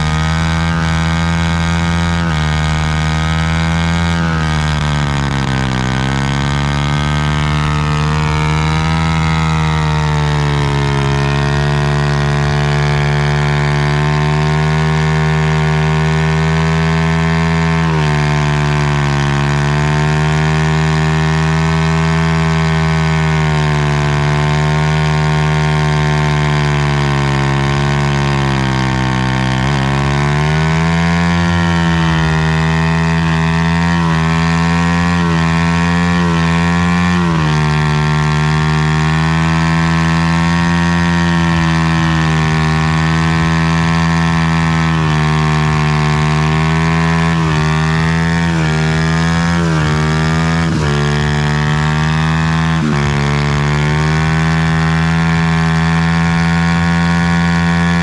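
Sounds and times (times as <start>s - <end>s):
motorcycle engine held revs: 0.0s - 58.0s.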